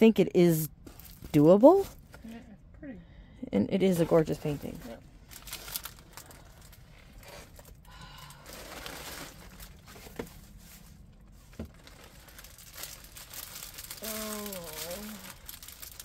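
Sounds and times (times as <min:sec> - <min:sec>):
plastic packaging crinkling: 0:05.3 - 0:16.0.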